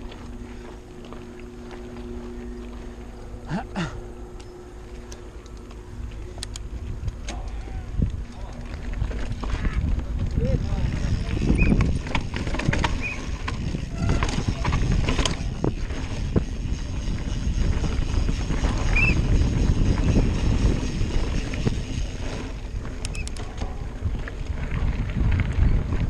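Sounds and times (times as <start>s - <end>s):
bike clicks: 0.0s - 26.0s
bike knocking and rattling: 0.0s - 26.0s
wind on microphone: 6.0s - 26.0s.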